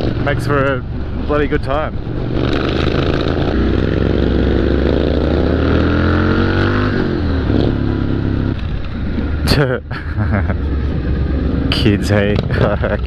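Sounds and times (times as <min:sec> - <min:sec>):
motorcycle engine accelerating: 0:00.0 - 0:13.0.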